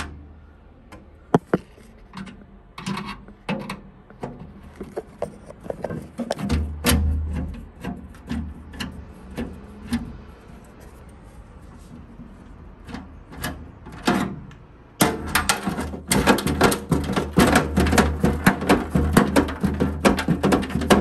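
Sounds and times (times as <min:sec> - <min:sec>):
metal bracket clicking and knocking: 0:01.0 - 0:10.1, 0:12.8 - 0:21.0.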